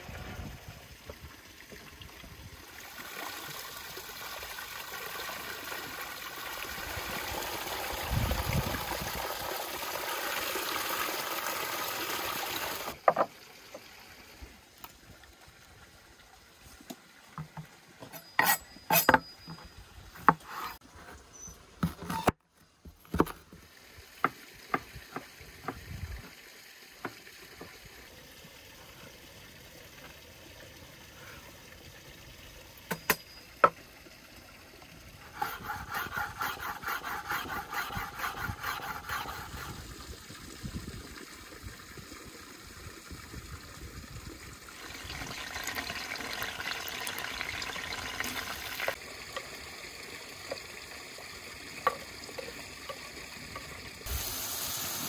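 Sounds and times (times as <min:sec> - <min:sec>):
steady hiss: 0:54.0 - 0:55.0.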